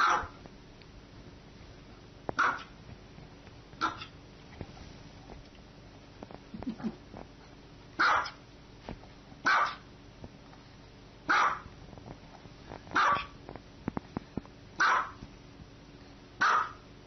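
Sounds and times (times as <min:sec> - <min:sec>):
small dog barking: 0:00.0 - 0:00.4, 0:02.4 - 0:02.8, 0:03.8 - 0:04.2, 0:08.0 - 0:08.4, 0:09.4 - 0:09.9, 0:11.3 - 0:11.7, 0:13.0 - 0:13.4, 0:14.8 - 0:15.2, 0:16.4 - 0:16.8.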